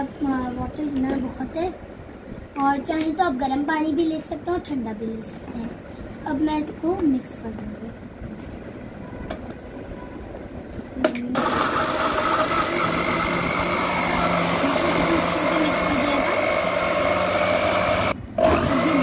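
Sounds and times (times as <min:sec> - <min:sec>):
blender motor whine: 0:11.3 - 0:19.0.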